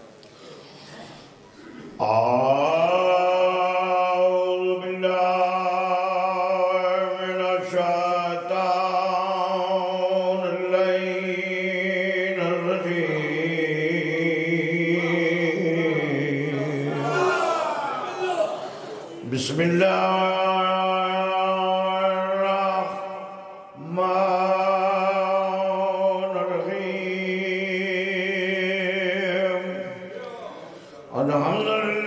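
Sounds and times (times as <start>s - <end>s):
man chanting through microphone: 1.7s - 32.0s.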